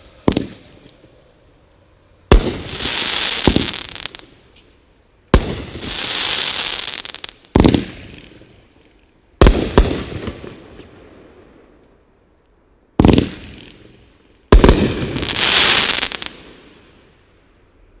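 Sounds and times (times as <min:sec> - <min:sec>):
firework bangs: 0:00.0 - 0:01.2, 0:02.3 - 0:04.3, 0:05.3 - 0:08.5, 0:09.4 - 0:11.1, 0:13.0 - 0:16.9
firework crackling: 0:02.3 - 0:04.6, 0:05.3 - 0:10.9, 0:13.0 - 0:17.2.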